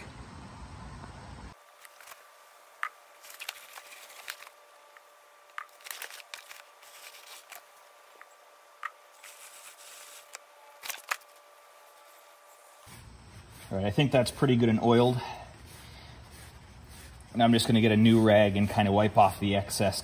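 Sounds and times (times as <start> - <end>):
faint steady hum: 0.0 - 20.0
paper towel rustling: 3.2 - 4.7, 5.5 - 7.7, 9.2 - 13.8.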